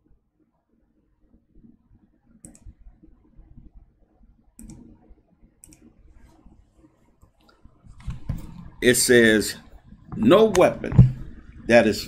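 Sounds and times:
quiet handling noise: 4.6s - 11.8s.

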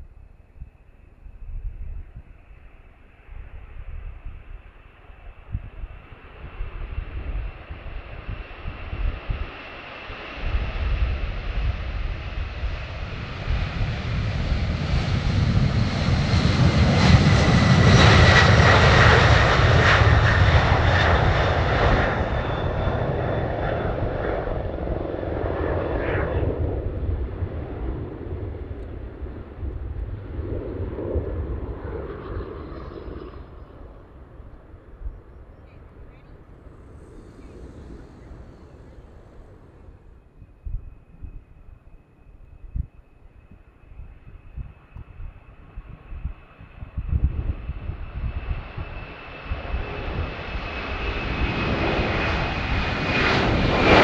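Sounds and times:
jet engines rumbling: 0.0s - 54.0s
high jet whine: 32.0s - 42.5s.

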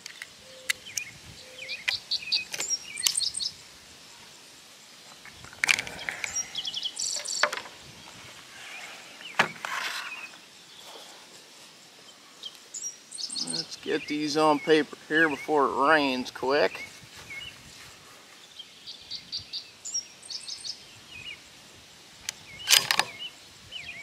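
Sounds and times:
small birds chirping: 0.0s - 21.6s, 22.2s - 24.0s
cartridges clicking into magazine: 22.3s - 23.2s
rifle handling clacks: 22.3s - 23.2s.

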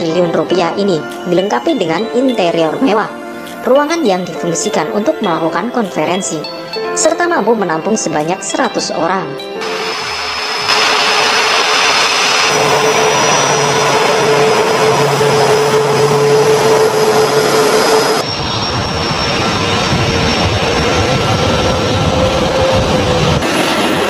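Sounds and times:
jet engines running: 9.6s - 24.0s.

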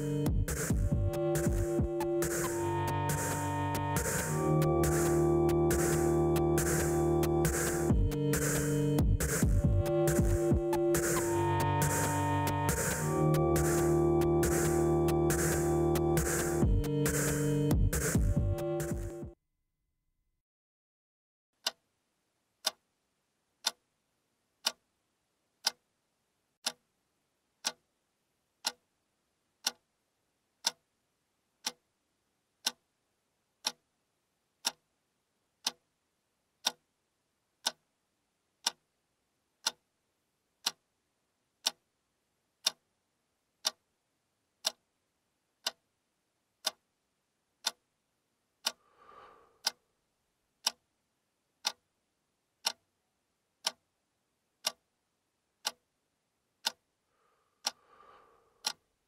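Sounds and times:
clock ticking: 0.0s - 19.4s, 23.6s - 23.8s, 24.6s - 24.8s, 25.6s - 25.8s, 26.6s - 26.8s, 27.6s - 27.8s, 28.6s - 28.8s, 29.6s - 29.9s, 30.6s - 30.8s, 31.6s - 31.8s, 32.6s - 32.8s, 33.6s - 33.8s, 34.6s - 34.8s, 35.6s - 35.8s, 36.6s - 36.8s, 37.6s - 37.8s, 38.6s - 38.8s, 39.6s - 39.8s, 40.6s - 40.8s, 41.6s - 41.8s, 42.6s - 42.8s, 43.6s - 43.8s, 44.6s - 44.8s, 45.6s - 45.8s, 46.6s - 46.8s, 47.6s - 47.8s, 48.6s - 49.8s, 50.6s - 50.8s, 51.6s - 51.8s, 52.6s - 52.8s, 53.6s - 53.8s, 54.6s - 54.8s, 55.6s - 55.8s, 56.6s - 56.8s, 57.6s - 58.8s.

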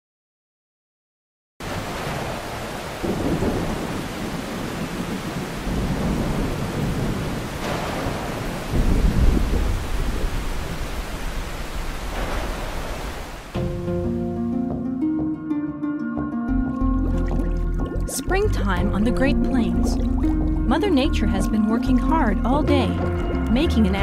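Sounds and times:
heavy rain: 1.6s - 13.8s
rolling thunder: 2.0s - 13.9s.

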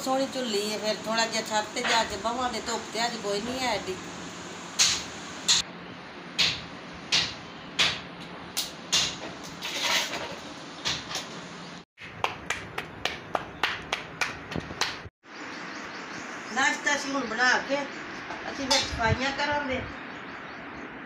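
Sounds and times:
hands slapping dough: 12.0s - 15.1s.

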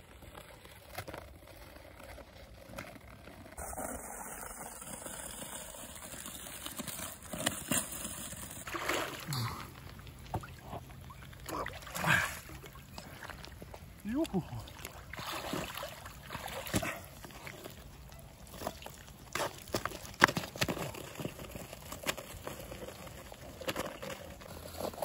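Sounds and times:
water splashing and sloshing: 2.0s - 25.0s
ice cracking and knocking: 18.5s - 25.0s.

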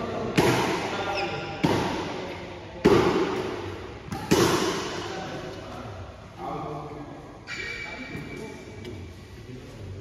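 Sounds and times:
rackets hitting shuttlecock: 2.8s - 5.0s.

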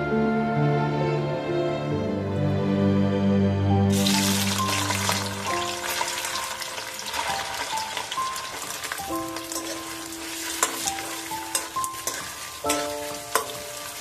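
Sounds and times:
cheese sizzling in hot oil: 3.9s - 14.0s
metal spoon clicking on pan: 9.4s - 10.0s, 10.6s - 14.0s.

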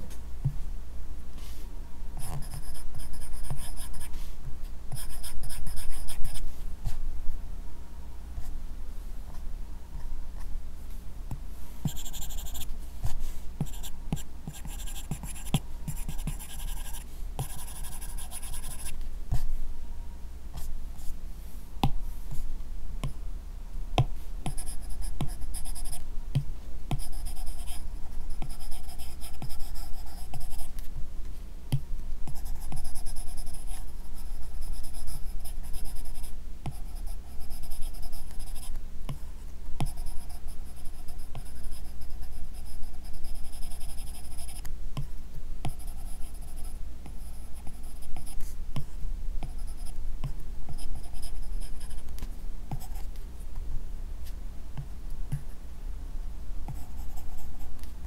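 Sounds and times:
stylus scratching on screen: 11.9s - 19.5s.

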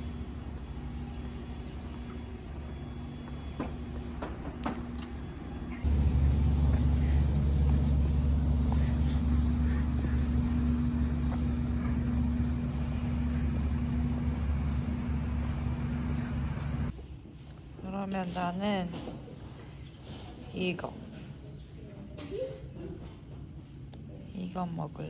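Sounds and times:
low mechanical rumble and hum: 0.0s - 18.8s.

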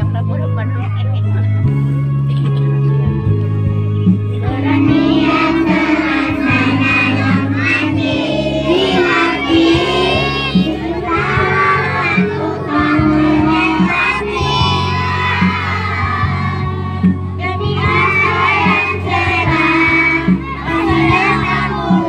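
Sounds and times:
backing music: 0.0s - 22.0s
children singing: 4.4s - 22.0s.

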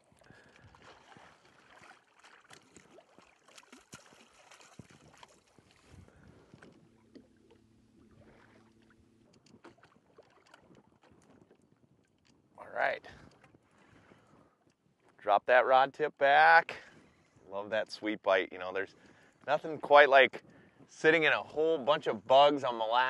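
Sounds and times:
light water noise: 0.0s - 15.3s
wind noise: 4.6s - 7.3s.

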